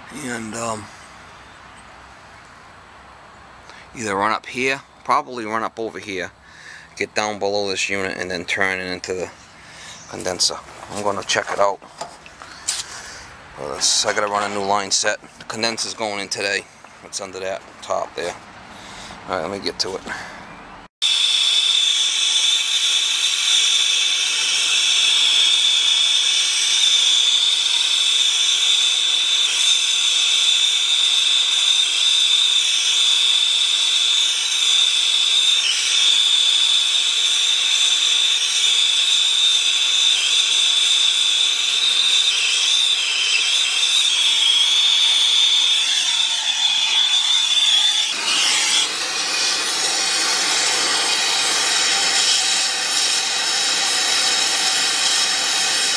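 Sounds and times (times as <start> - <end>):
high whistle in flame hiss: 21.0 - 55.9
torch flame hissing: 21.1 - 55.9.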